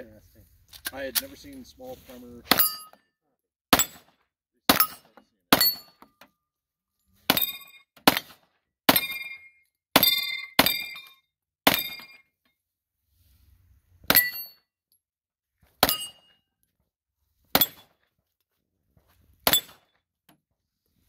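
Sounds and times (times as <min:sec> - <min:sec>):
metallic ring of steel target: 0:02.5 - 0:03.0, 0:04.7 - 0:06.1, 0:08.9 - 0:12.3, 0:14.1 - 0:14.7, 0:15.8 - 0:16.4
pistol shots: 0:08.0 - 0:09.2, 0:19.4 - 0:19.8.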